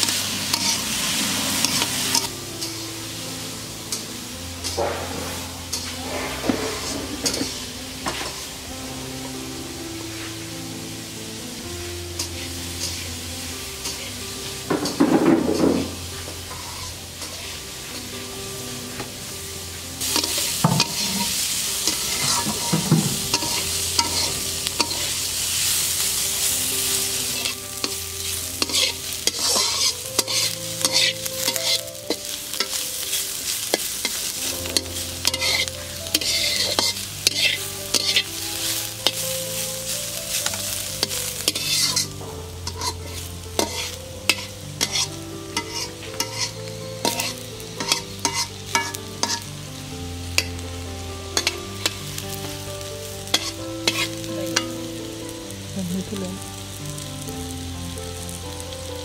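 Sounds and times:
metal spatula scraping pan: 0.0s - 2.7s, 4.6s - 8.4s, 14.8s - 17.6s, 20.0s - 25.3s, 27.3s - 32.7s, 33.7s - 39.3s, 41.0s - 49.5s, 51.4s - 52.0s, 53.3s - 54.7s
peel sizzling in hot oil: 0.0s - 59.0s.

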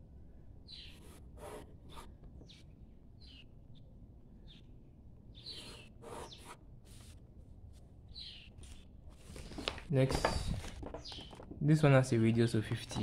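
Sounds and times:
bird chirping: 0.3s - 6.6s, 8.1s - 8.9s, 10.8s - 11.9s
pencil scratching on paper: 0.9s - 2.1s, 5.5s - 7.2s.

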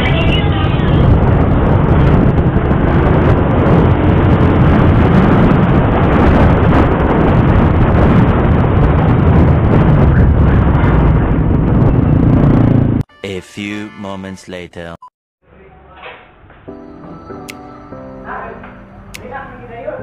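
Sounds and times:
vehicle engine and road noise: 0.0s - 13.0s
wind rumble on microphone: 0.0s - 13.0s.

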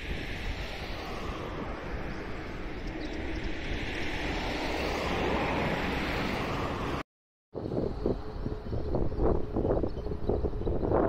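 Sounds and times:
jet airliner flying overhead: 0.0s - 7.0s
wind buffeting microphone: 0.0s - 7.0s, 7.6s - 11.0s.

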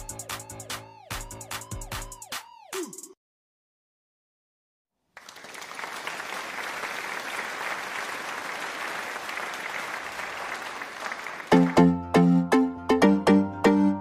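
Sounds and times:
crowd applauding: 5.1s - 11.9s.

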